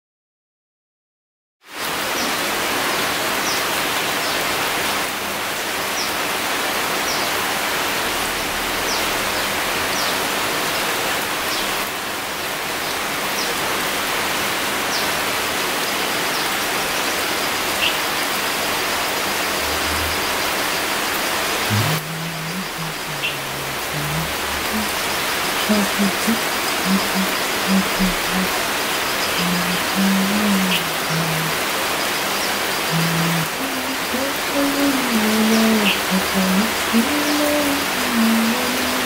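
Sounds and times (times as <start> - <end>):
rain falling on foliage: 1.6 - 39.0
high falling chirps: 19.4 - 31.5.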